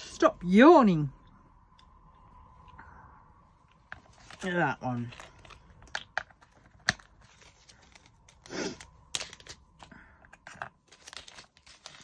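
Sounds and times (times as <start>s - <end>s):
plastic bag rustling: 10.8s - 12.0s.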